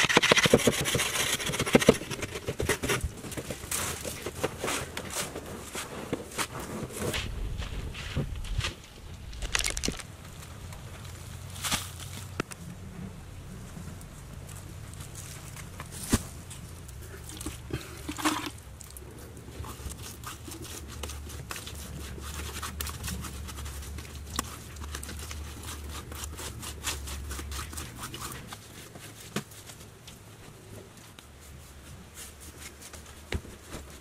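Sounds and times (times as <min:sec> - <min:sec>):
low steady hum: 0:01.1 - 0:34.0
hands working wet clay: 0:14.9 - 0:34.0.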